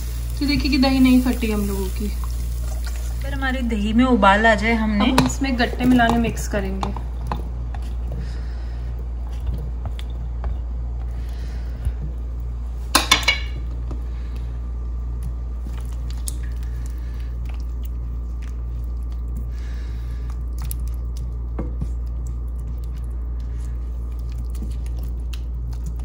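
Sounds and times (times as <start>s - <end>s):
steady low hum: 0.0s - 26.0s
spatula squelching and scraping: 15.2s - 26.0s.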